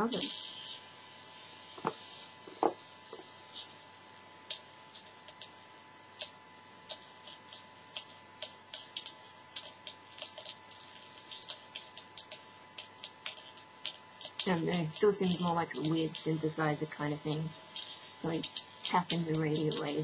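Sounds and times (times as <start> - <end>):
faint steady whine and hiss: 0.0 - 20.0
speaker clicks and crackles: 4.5 - 5.6, 6.2 - 20.0.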